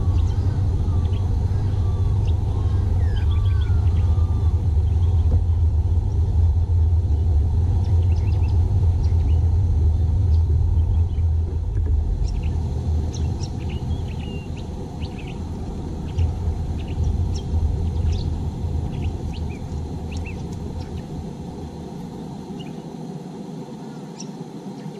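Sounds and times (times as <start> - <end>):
bird chirps: 0.0 - 5.3, 7.8 - 9.4, 12.2 - 21.1
steady low rumble: 0.0 - 24.9.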